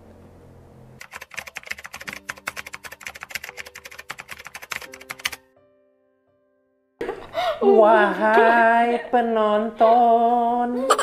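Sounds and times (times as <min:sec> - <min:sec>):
rapid typing-like clicking: 0:01.0 - 0:05.4.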